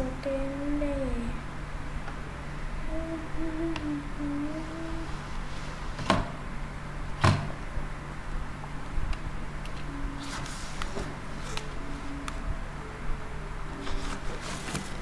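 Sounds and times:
person humming: 0.0s - 1.4s, 2.8s - 5.4s
steady low hum: 0.0s - 15.0s.

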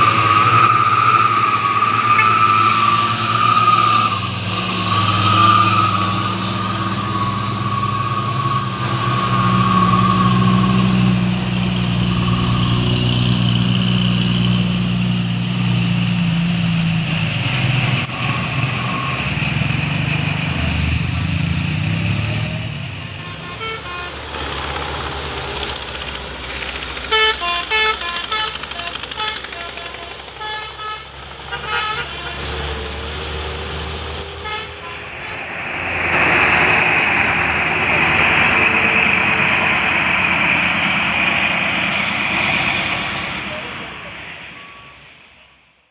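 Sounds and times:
diesel trucks labouring uphill: 0.0s - 45.9s
vehicle horn toot: 2.0s - 3.0s, 23.2s - 24.4s, 27.1s - 32.6s, 34.4s - 35.4s.

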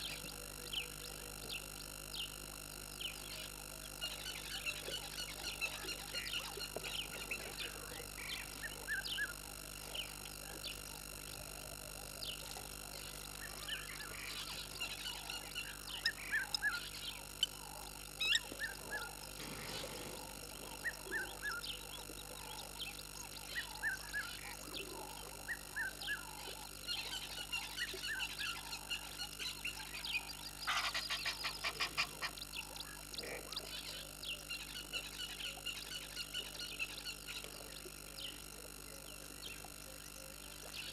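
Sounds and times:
birds chirping: 0.0s - 11.4s, 12.1s - 40.9s
frogs croaking: 0.0s - 40.9s
rattling calls: 27.7s - 34.0s.

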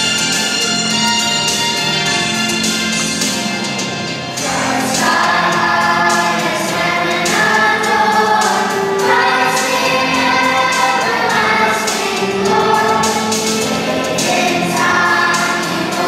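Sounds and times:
instrumental music: 0.0s - 16.0s
children's choir singing: 4.3s - 16.0s.

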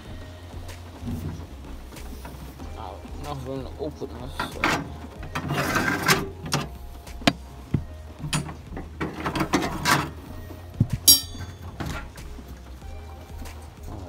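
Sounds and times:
objects knocking and clicking: 4.3s - 12.6s
ringing metallic clink: 11.1s - 12.1s.

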